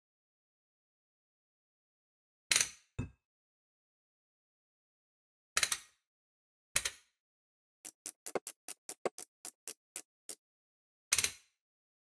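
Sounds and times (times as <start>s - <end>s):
hand ratchet clicking: 7.9s - 10.4s.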